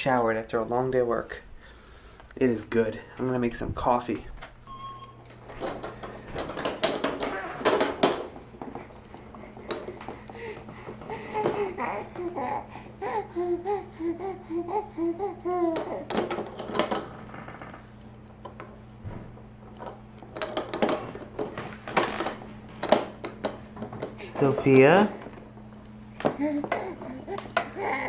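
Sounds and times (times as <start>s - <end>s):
steady low hum: 0.0s - 28.0s
plastic toys clicking and knocking: 5.5s - 11.8s, 15.7s - 17.2s, 19.7s - 25.2s, 26.2s - 28.0s
baby babbling: 11.1s - 16.2s, 26.4s - 28.0s.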